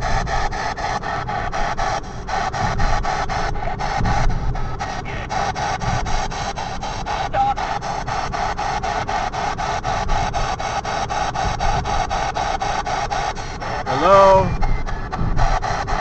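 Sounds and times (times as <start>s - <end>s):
choppy bursts of radio static: 4.9s - 6.1s, 7.1s - 8.0s, 13.0s - 15.6s.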